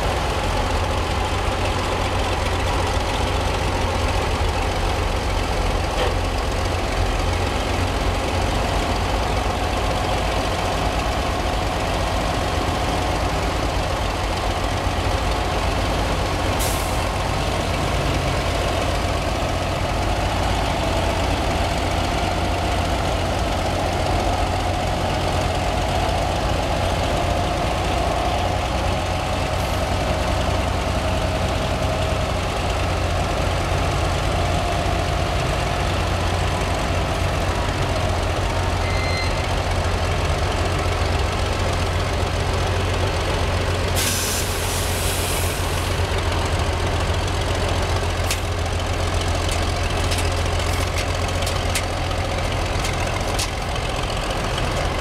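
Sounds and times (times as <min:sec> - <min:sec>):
crane engine running: 0:00.0 - 0:55.0
air hiss: 0:44.0 - 0:46.0.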